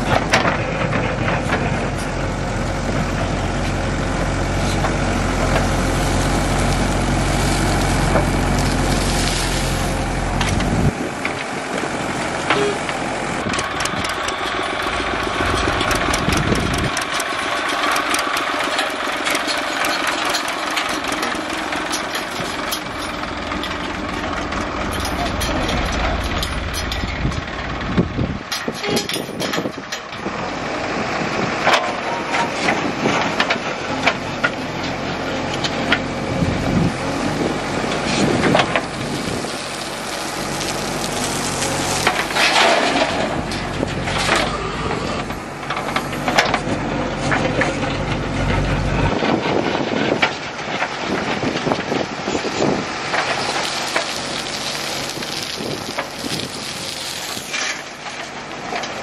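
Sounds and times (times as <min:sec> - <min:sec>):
diesel engine under load: 0:00.0 - 0:59.0
bucket scraping stony soil: 0:04.6 - 0:10.9, 0:52.4 - 0:59.0
dirt and gravel pouring into metal bed: 0:04.7 - 0:11.6, 0:13.7 - 0:27.6, 0:38.0 - 0:44.7, 0:51.0 - 0:59.0.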